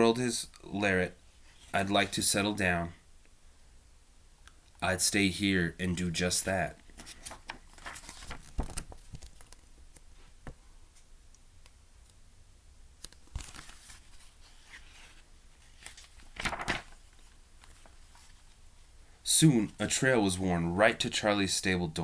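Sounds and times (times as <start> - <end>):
book pages rustling: 6.8 - 10.6, 13.0 - 18.6.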